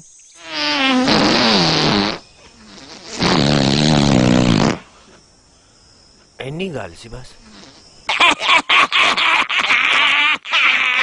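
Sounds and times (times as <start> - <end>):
long fart noises: 0.4 - 5.1, 7.5 - 11.0.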